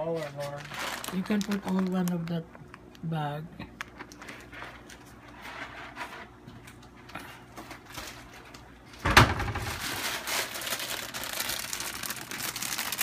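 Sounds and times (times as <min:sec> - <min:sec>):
plastic bag crinkling: 0:00.0 - 0:03.0, 0:09.5 - 0:13.0.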